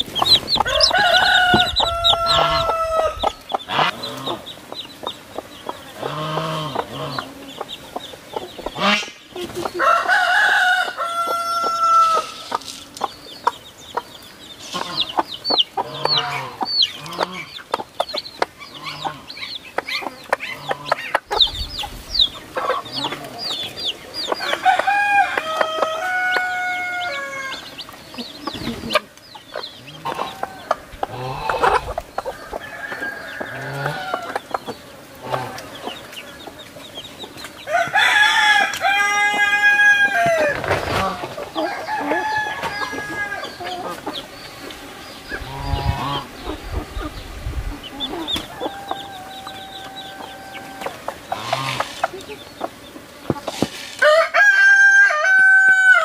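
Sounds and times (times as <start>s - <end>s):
chicks peeping: 0.0s - 56.0s
hen clucking: 0.0s - 56.0s
rooster crowing: 0.5s - 3.9s, 9.8s - 12.5s, 24.4s - 27.7s, 30.0s - 34.6s, 37.7s - 43.9s, 48.1s - 51.2s, 54.0s - 56.0s.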